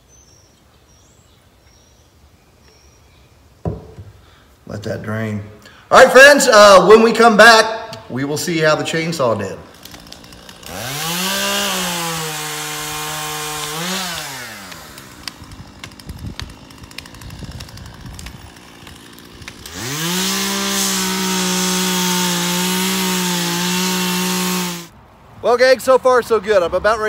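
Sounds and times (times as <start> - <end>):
chainsaw revving: 9.6 - 24.9.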